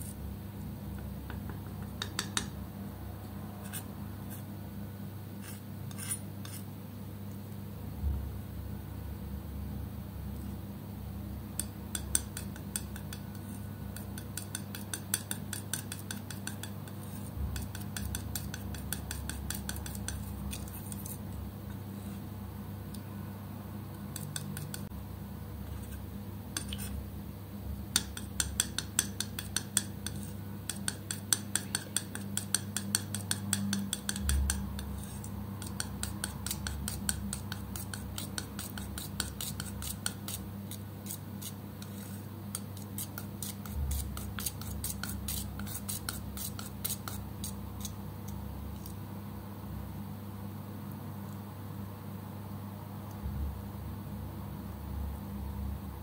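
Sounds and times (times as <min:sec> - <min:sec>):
low steady hum: 0:00.0 - 0:56.0
palette knife scraping paint: 0:03.6 - 0:04.5, 0:05.4 - 0:06.7, 0:11.6 - 0:21.3, 0:24.1 - 0:24.9, 0:25.6 - 0:26.0, 0:26.6 - 0:27.0, 0:28.0 - 0:48.0, 0:48.8 - 0:49.0.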